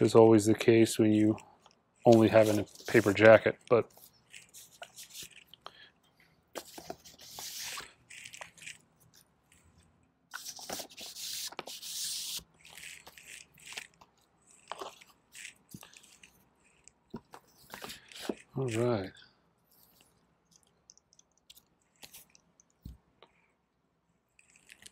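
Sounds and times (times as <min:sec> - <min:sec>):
paper sleeves rustling: 0:02.0 - 0:05.6, 0:06.6 - 0:09.7, 0:10.3 - 0:13.9.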